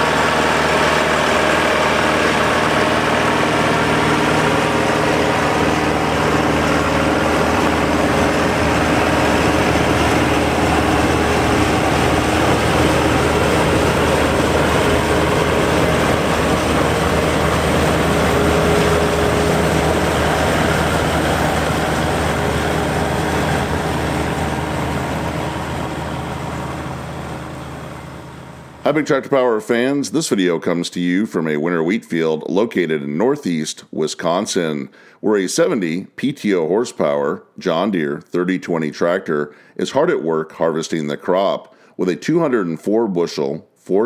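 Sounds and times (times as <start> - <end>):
combine threshing machinery: 0.0 - 28.8
tractor engine under load: 0.0 - 29.1.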